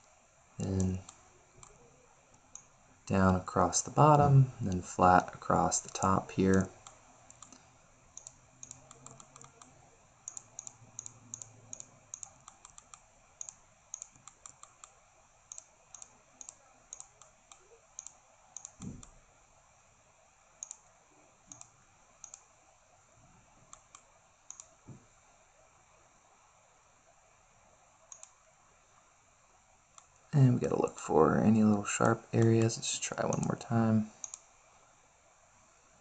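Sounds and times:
computer mouse clicks: 0.0s - 2.7s, 5.8s - 19.2s, 20.6s - 22.5s, 23.7s - 25.0s, 28.1s - 28.4s, 32.0s - 33.5s, 34.2s - 34.5s.

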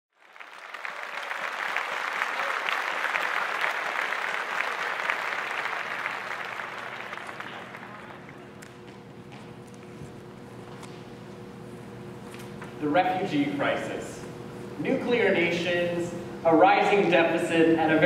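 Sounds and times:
audience applauding: 0.1s - 9.0s.

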